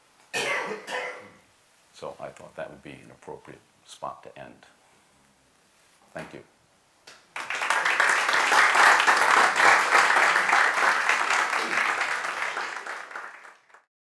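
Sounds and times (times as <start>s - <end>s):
audience applauding: 7.3s - 13.9s.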